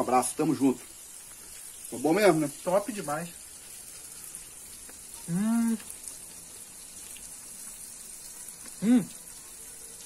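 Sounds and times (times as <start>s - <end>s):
faint high hiss: 0.0s - 10.0s
man humming while chewing: 8.6s - 9.2s.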